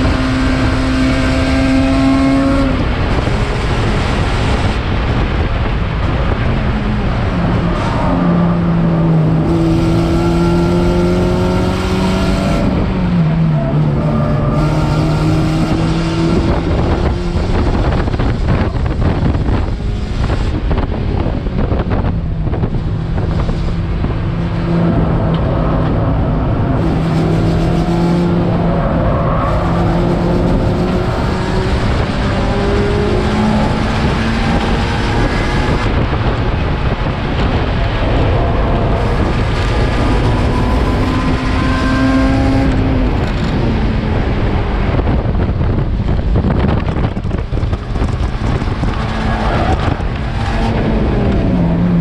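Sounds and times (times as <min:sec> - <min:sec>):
race car engine running hard: 0:00.0 - 0:52.0
road noise: 0:00.0 - 0:52.0.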